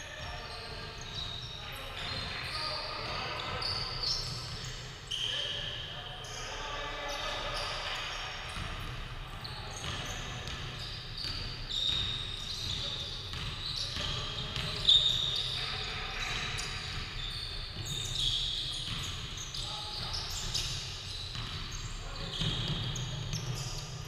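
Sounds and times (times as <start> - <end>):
sneakers squeaking on floor: 0.0 - 24.0
basketball bouncing: 9.8 - 14.7.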